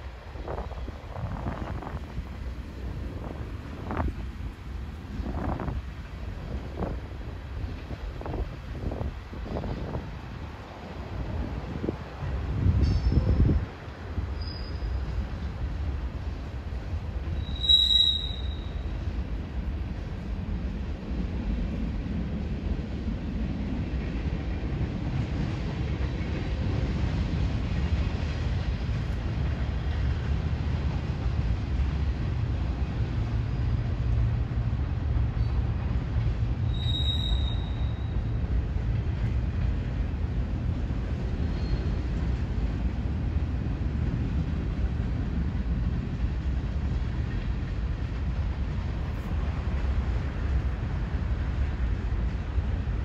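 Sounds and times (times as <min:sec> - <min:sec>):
freight train rumbling: 0:00.0 - 0:53.0
high-pitched wheel squeal: 0:14.4 - 0:15.0, 0:17.4 - 0:18.8, 0:36.7 - 0:38.2.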